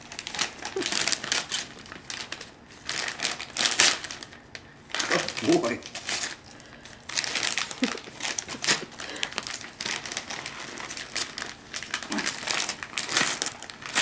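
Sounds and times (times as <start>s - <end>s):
gift wrapping crinkling: 0.0s - 14.0s.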